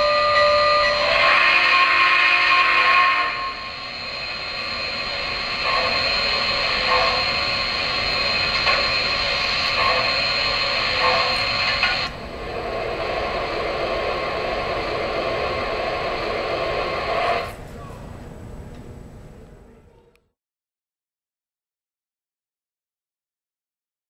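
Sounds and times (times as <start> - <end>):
model steam locomotive hiss: 0.0 - 17.6.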